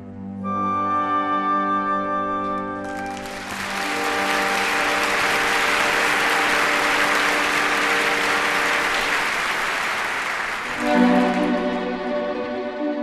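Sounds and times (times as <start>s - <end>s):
soft sustained orchestral notes: 0.0s - 13.0s
audience applauding: 2.8s - 12.1s
orchestra held chord: 2.9s - 12.2s.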